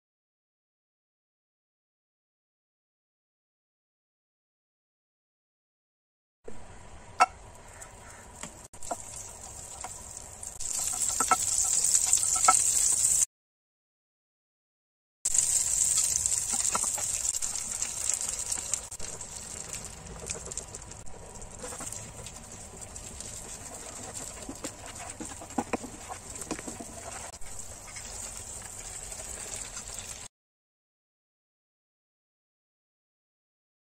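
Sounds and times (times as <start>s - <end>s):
sauce sizzling in frying pan: 8.8s - 13.3s, 15.3s - 30.3s
spatula scraping pan: 10.6s - 13.2s, 21.5s - 30.0s.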